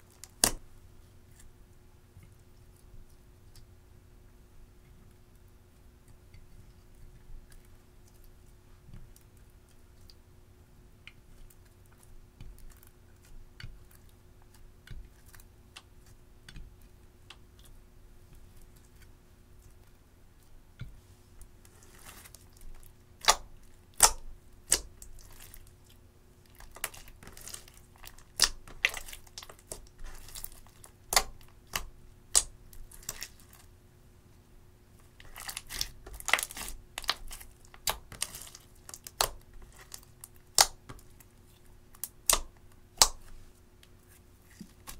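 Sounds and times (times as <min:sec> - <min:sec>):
crackly slime squishing: 0:00.0 - 0:01.6, 0:11.0 - 0:33.8, 0:34.9 - 0:44.9
slime popping and clicking: 0:40.5 - 0:41.0.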